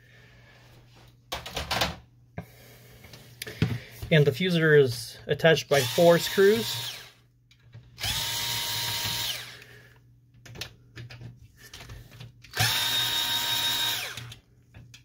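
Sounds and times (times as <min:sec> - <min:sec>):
electric screwdriver whining: 0:05.8 - 0:07.1, 0:08.0 - 0:09.6, 0:12.5 - 0:14.4.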